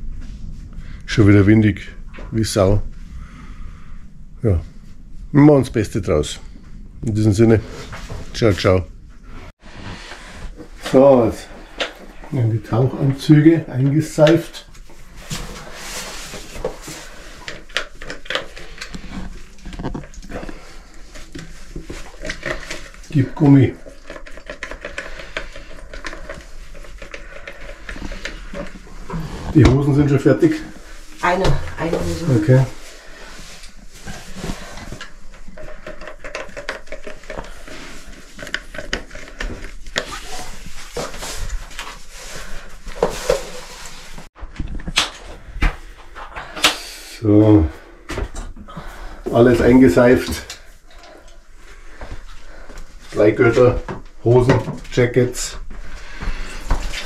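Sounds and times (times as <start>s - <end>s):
soft rubbing and rustling: 6.4s - 44.6s.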